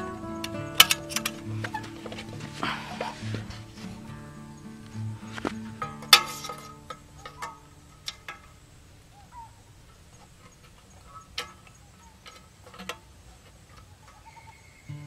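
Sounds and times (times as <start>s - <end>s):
sticks tapping on tin can: 4.8s - 8.5s.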